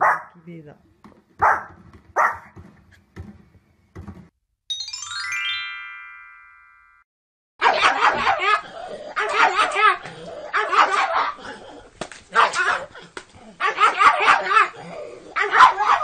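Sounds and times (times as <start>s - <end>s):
dog barking: 0.0s - 0.4s, 1.4s - 2.6s, 7.6s - 11.4s, 12.3s - 16.0s
bright chiming sound effect: 4.7s - 7.0s.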